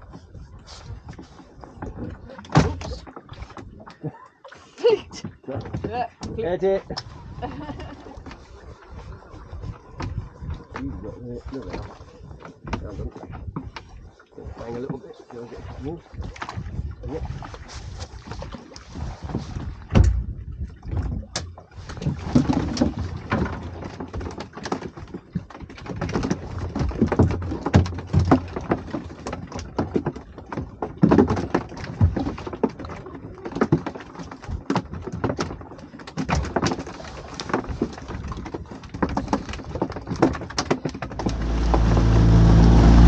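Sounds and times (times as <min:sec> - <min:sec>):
boat engine running: 0:41.1 - 0:43.0.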